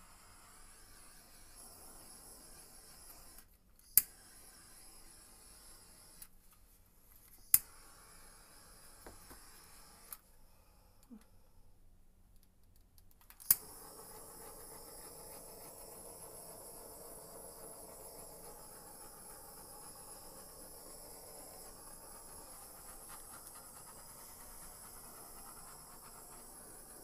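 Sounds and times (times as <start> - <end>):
torch flame hissing: 0.0 - 6.3, 7.5 - 10.2, 13.5 - 27.0
torch igniter clicks: 7.5 - 7.8, 13.0 - 14.0.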